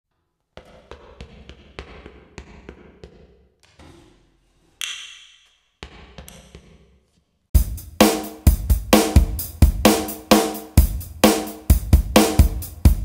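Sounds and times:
footsteps tapping: 0.1 - 4.2, 4.8 - 7.4.

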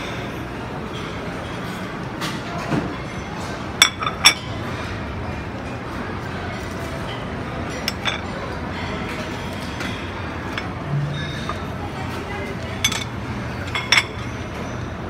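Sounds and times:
murmur of diners: 0.0 - 15.0
ringing clinks of tableware: 7.7 - 11.7, 12.8 - 14.8.

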